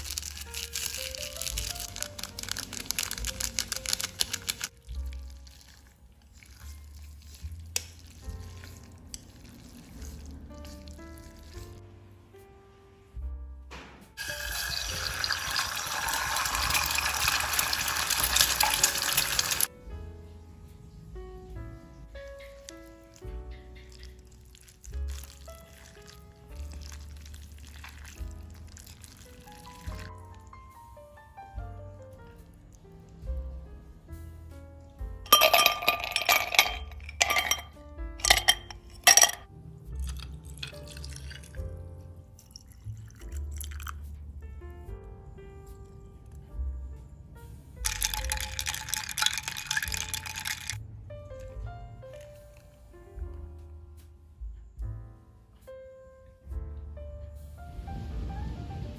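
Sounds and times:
ice cubes clinking in glass: 0:00.0 - 0:04.7, 0:14.2 - 0:19.7, 0:35.3 - 0:39.4, 0:40.0 - 0:41.6, 0:47.8 - 0:50.8
tea pouring over ice: 0:00.0 - 0:11.7, 0:14.2 - 0:19.7, 0:23.9 - 0:30.5, 0:35.3 - 0:39.4, 0:40.0 - 0:41.7, 0:42.4 - 0:44.0, 0:47.8 - 0:50.8
soft background music: 0:00.0 - 0:58.9
egg sizzling in hot oil: 0:14.2 - 0:19.7.

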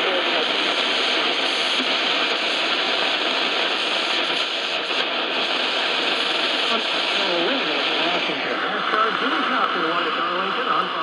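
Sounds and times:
radio static: 0:00.0 - 0:11.0.

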